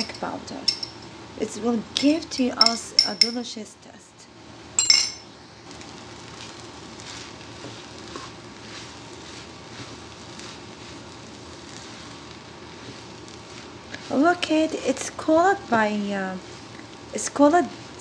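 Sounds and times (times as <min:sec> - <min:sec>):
food sizzling in frying pan: 0:04.6 - 0:18.0
sharp clink: 0:04.8 - 0:05.2
wooden spatula scraping pan: 0:05.8 - 0:18.0.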